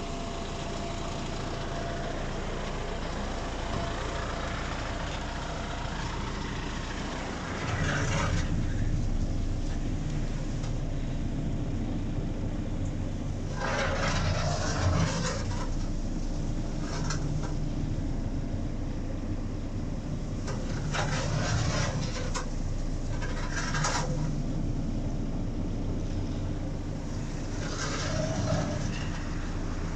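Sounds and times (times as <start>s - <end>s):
feed mixer wagon rumbling: 0.0s - 29.9s
short scraping bursts: 13.5s - 15.8s, 20.6s - 22.5s, 27.5s - 29.4s.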